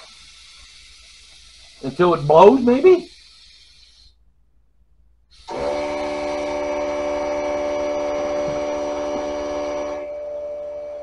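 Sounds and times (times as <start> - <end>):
electric inflator motor whine: 5.3 - 11.0.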